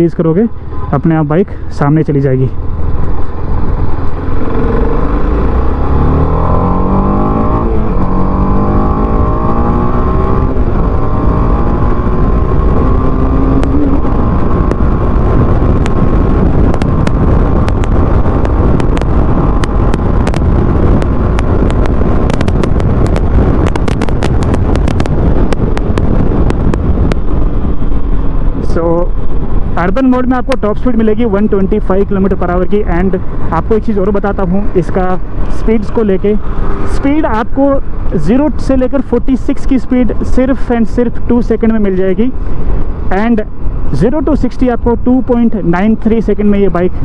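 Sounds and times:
heavy wind noise: 0:00.0 - 0:47.0
wind buffeting clicks: 0:02.6 - 0:47.0
motorcycle engine revving: 0:02.8 - 0:30.1, 0:33.0 - 0:38.2.

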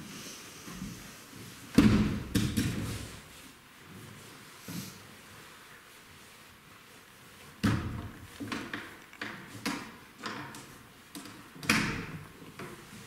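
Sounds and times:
irregular knocks and thuds: 0:01.7 - 0:03.0, 0:07.6 - 0:10.6.

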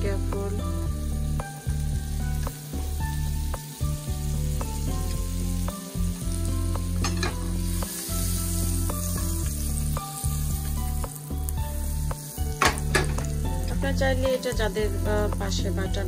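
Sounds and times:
background music low notes: 0:00.0 - 0:16.0
butter sizzling in a frying pan: 0:00.0 - 0:16.0
sharp pop from the pan: 0:12.6 - 0:13.3.

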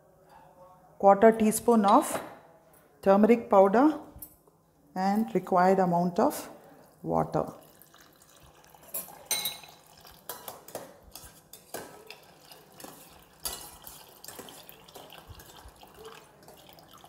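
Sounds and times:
water pouring from jug: 0:06.6 - 0:10.3, 0:12.0 - 0:17.0
spoon scraping steel bowl: 0:08.9 - 0:16.1.

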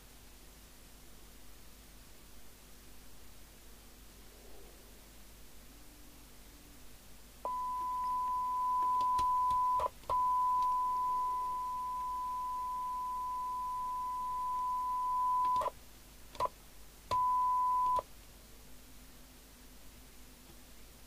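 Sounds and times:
steady test tone from radio speaker: 0:07.4 - 0:15.7, 0:17.1 - 0:18.1.

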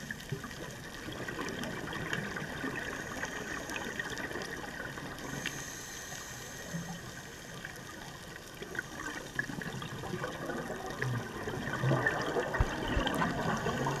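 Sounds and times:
underwater exhaled bubbles gurgling: 0:00.0 - 0:14.0
steady hiss: 0:02.6 - 0:09.6.

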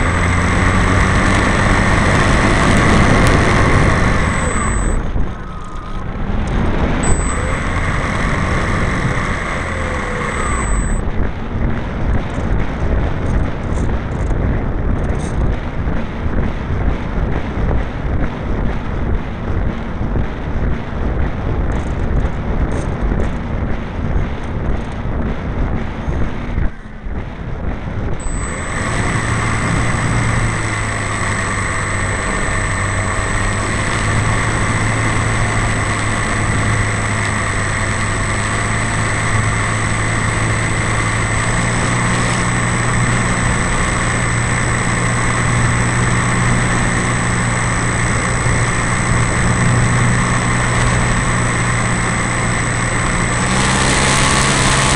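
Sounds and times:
model plane engine running: 0:00.0 - 0:11.2, 0:28.2 - 0:54.9
thin high whine: 0:00.0 - 0:11.3, 0:28.1 - 0:54.9
wind rushing over camera: 0:00.0 - 0:54.9.

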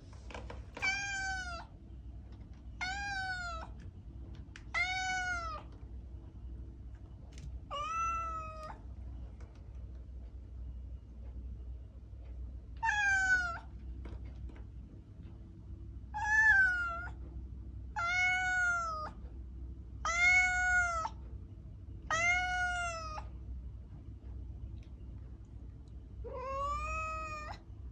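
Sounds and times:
cat meowing: 0:00.8 - 0:01.7, 0:02.8 - 0:03.8, 0:04.7 - 0:05.7, 0:07.7 - 0:08.8, 0:12.8 - 0:13.7, 0:16.1 - 0:17.2, 0:18.0 - 0:19.2, 0:20.0 - 0:21.2, 0:22.1 - 0:23.3, 0:26.2 - 0:27.6.

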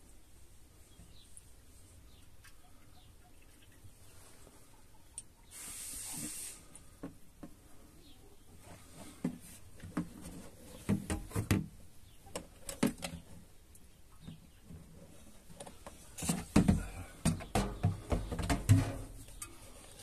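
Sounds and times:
short hiss: 0:05.5 - 0:06.9.

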